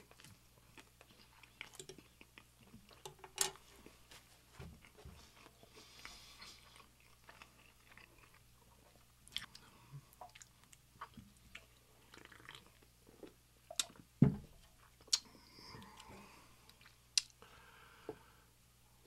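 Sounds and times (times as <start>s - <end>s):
close chewing with mouth clicks: 0.0s - 3.1s, 4.8s - 14.0s.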